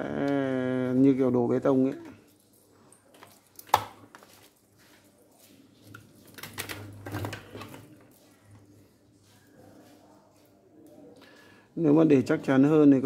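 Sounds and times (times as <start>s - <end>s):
electrical wires being handled: 1.8s - 11.1s.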